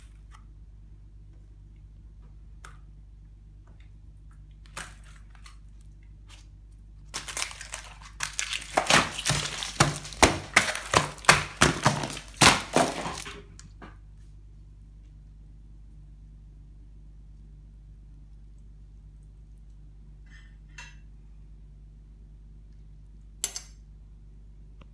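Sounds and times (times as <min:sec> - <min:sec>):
cereal flakes crunching: 0:04.7 - 0:13.4.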